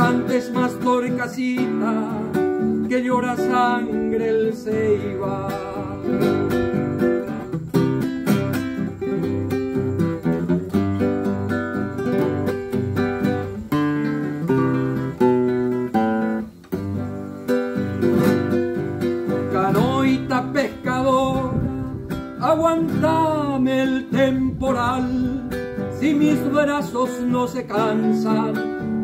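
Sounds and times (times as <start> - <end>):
man singing: 0.0 - 7.4, 19.3 - 29.0
classical guitar playing: 0.0 - 29.0.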